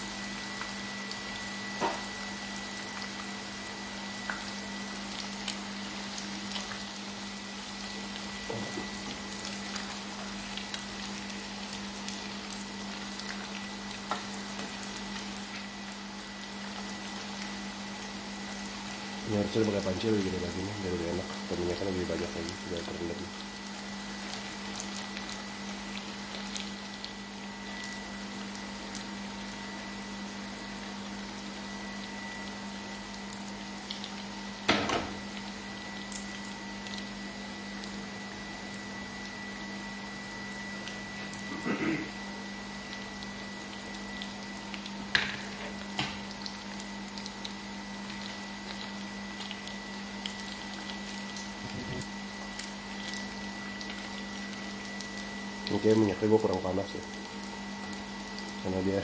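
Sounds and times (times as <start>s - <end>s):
wonton skins sizzling in oil: 0.0s - 59.0s
oil bubbling weakly: 0.1s - 59.0s.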